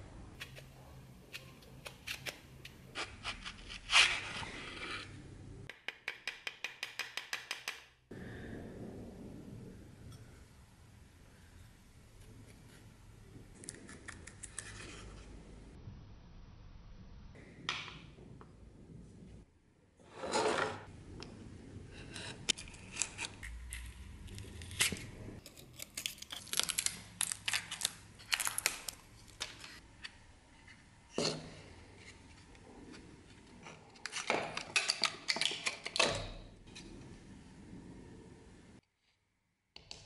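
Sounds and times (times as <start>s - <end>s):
tearing and scraping: 22.0s - 29.8s.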